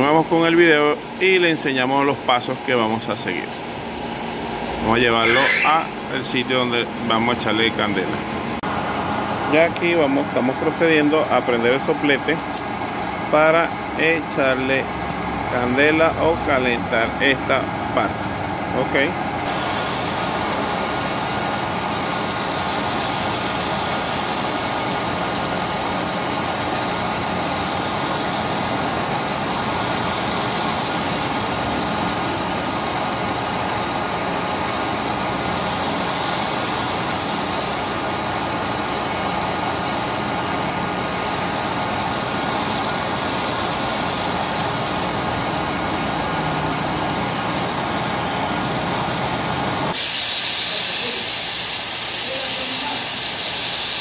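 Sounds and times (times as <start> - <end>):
gas torch flame hissing: 49.9 - 54.0.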